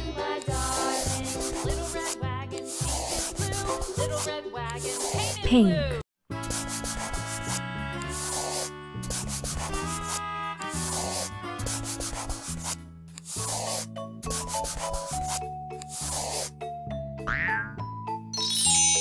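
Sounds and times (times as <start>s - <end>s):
children's background melody: 0.0s - 5.5s, 13.5s - 19.0s
scratchy scribbling: 0.5s - 5.4s, 6.4s - 16.5s.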